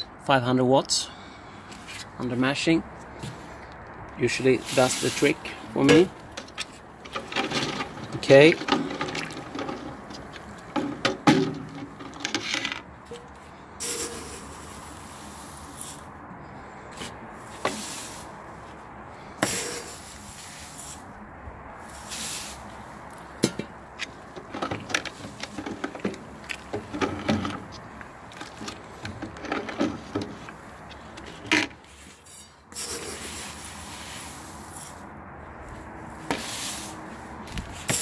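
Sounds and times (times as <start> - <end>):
metal scoop scraping and knocking: 4.7 - 14.5, 24.4 - 33.3.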